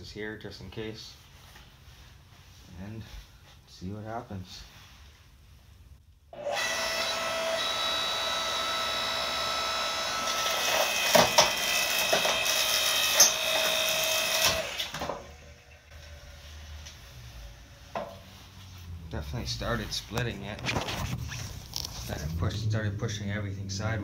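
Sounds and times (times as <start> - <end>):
log splitter motor whine: 6.4 - 15.3.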